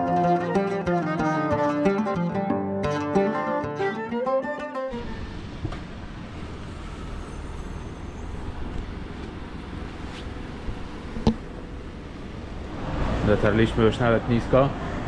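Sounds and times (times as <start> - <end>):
road traffic rumble: 4.8 - 15.0.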